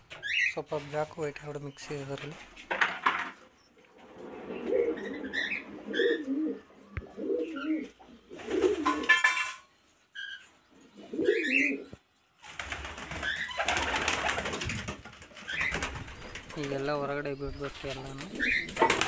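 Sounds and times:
pigeons cooing: 0:04.0 - 0:09.2, 0:10.2 - 0:12.0, 0:17.4 - 0:19.0.

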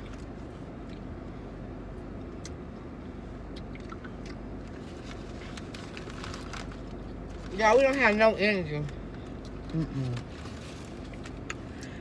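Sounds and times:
low hum inside a car: 0:00.0 - 0:12.0
wet mouth clicks and smacks: 0:03.5 - 0:04.4.

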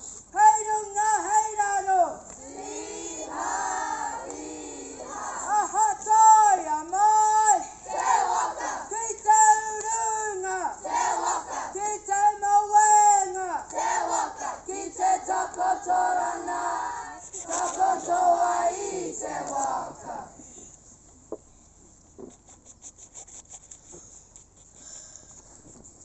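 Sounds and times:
students chanting in unison: 0:02.4 - 0:05.6, 0:07.5 - 0:09.0, 0:10.8 - 0:11.8, 0:13.4 - 0:20.4.

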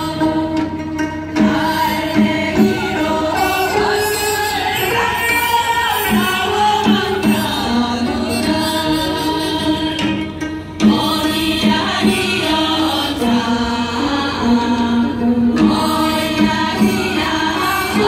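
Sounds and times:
traditional ensemble accompaniment: 0:00.0 - 0:18.0
choir singing: 0:01.4 - 0:09.8, 0:10.8 - 0:18.0.

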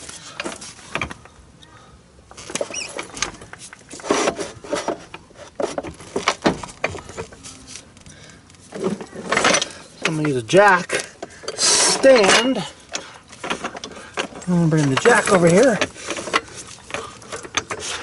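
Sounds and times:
short squeaks: 0:02.5 - 0:04.9
pry bar scraping metal: 0:08.8 - 0:18.0.

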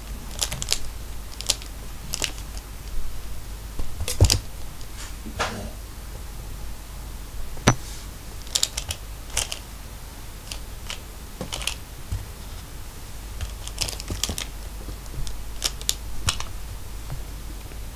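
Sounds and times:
toy clicking and scratching: 0:00.3 - 0:02.7, 0:08.4 - 0:09.7, 0:10.4 - 0:11.8, 0:13.4 - 0:14.6, 0:15.2 - 0:16.5.

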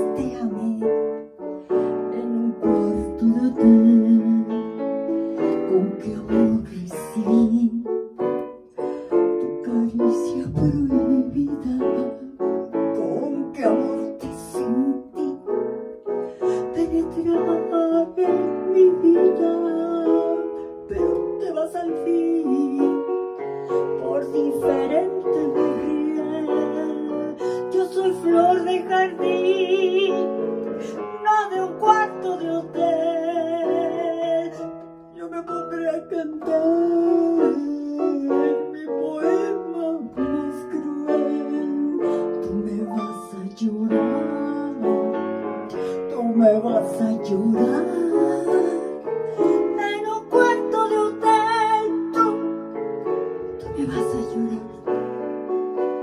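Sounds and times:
digital piano playing blues: 0:00.0 - 0:56.0.

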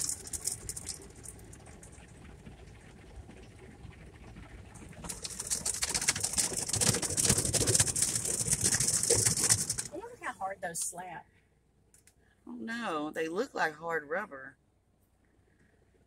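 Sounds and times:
car wash brushes slapping: 0:05.0 - 0:10.3.

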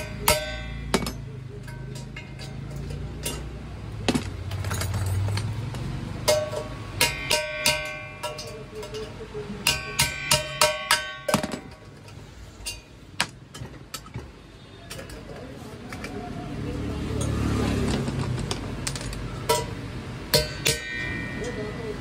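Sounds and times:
metal pot struck with ringing taps: 0:00.0 - 0:03.5, 0:06.2 - 0:11.8, 0:19.4 - 0:21.7.

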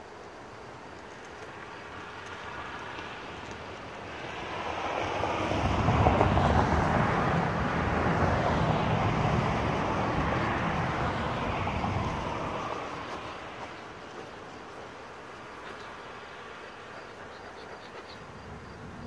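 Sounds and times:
vehicle passing rumble: 0:01.5 - 0:19.0.

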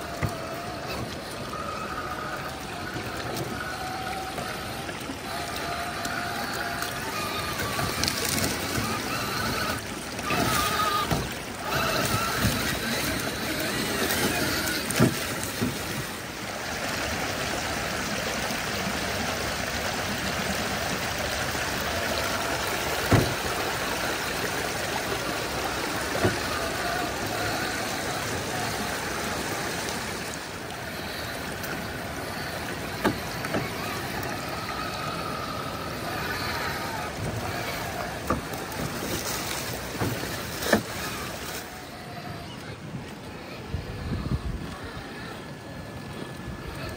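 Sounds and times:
electric motor whining: 0:00.0 - 0:46.9
water running over rocks: 0:00.0 - 0:46.9.

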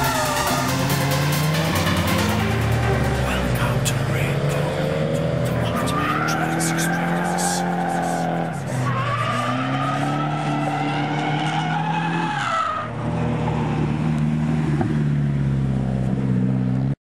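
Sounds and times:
car engine revving high: 0:00.0 - 0:17.0
tyres squealing: 0:03.2 - 0:12.9.

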